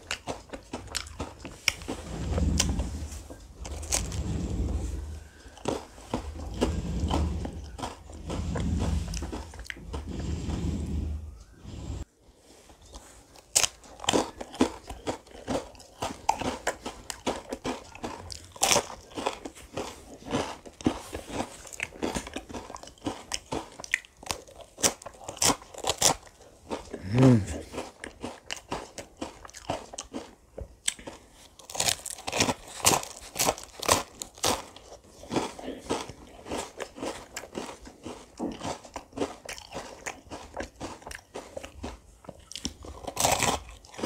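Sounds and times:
crunchy bites and chewing: 0.0s - 10.3s, 12.9s - 44.0s.

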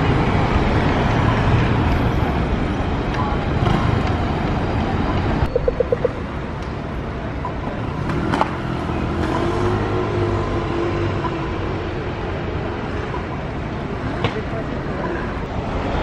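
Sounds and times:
traffic passing: 0.0s - 16.0s
short beeps: 5.5s - 6.5s.

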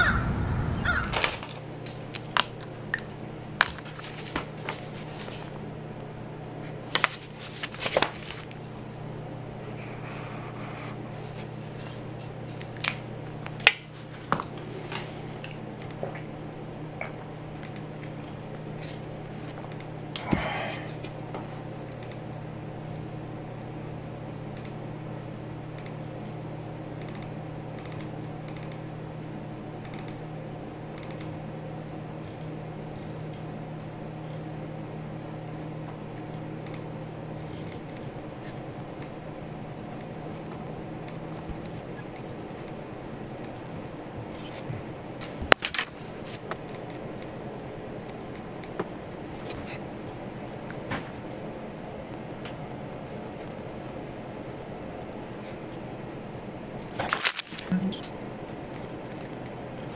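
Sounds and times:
steady low hum: 0.0s - 59.9s
paper pages rustling: 3.1s - 5.6s, 6.6s - 8.6s, 56.9s - 57.7s
computer keyboard typing: 27.0s - 28.8s, 31.0s - 31.4s.

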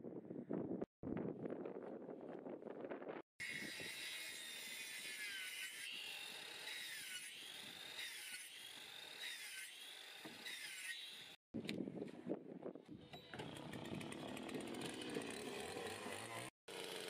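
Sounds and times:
circular saw cutting wood: 3.4s - 11.4s, 13.2s - 17.0s.

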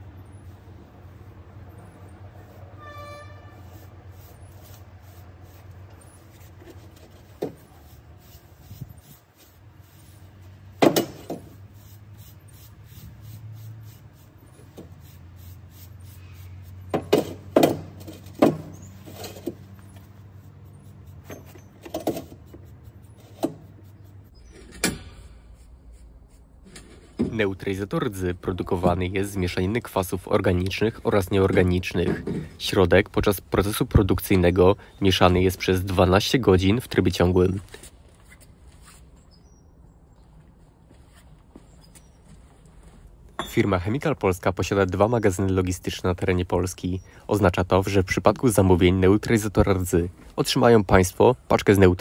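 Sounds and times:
high squeak: 2.7s - 4.0s.

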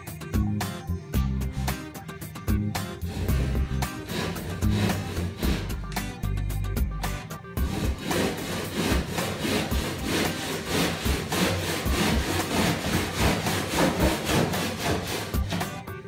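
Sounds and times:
handsaw cutting: 3.0s - 5.9s, 7.6s - 15.8s.

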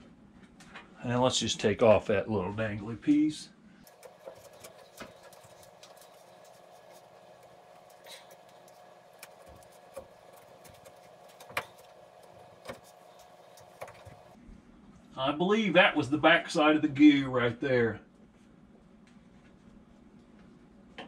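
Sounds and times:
faint steady hum: 3.2s - 15.1s
clicks and knocks of hand work: 3.9s - 14.4s.

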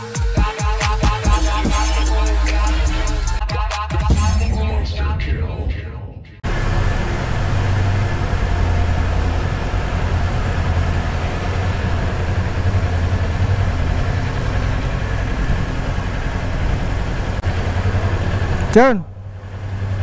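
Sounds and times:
motorcycle engine rumbling at low revs: 6.5s - 20.0s.

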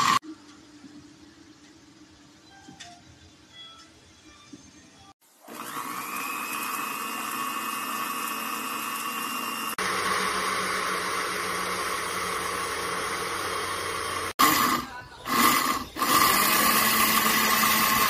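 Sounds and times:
blender motor whine: 0.0s - 0.2s, 5.3s - 18.0s.

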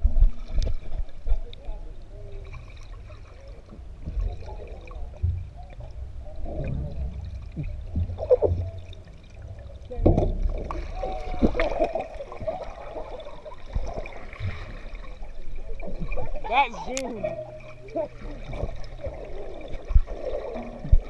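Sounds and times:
muffled underwater sloshing: 0.0s - 21.0s
low rumble: 3.6s - 16.5s.

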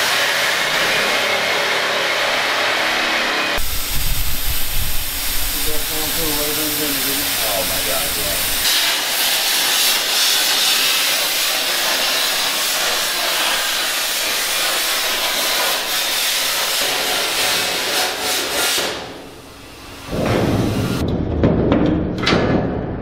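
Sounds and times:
plasma cutter hissing: 3.6s - 21.0s.

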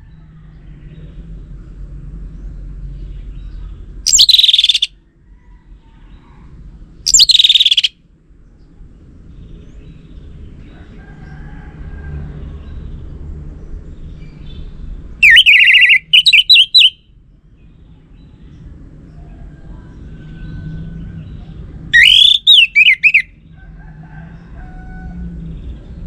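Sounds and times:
thrush singing whistled phrases: 4.1s - 4.9s, 7.1s - 7.9s, 15.2s - 17.0s, 22.0s - 23.3s.

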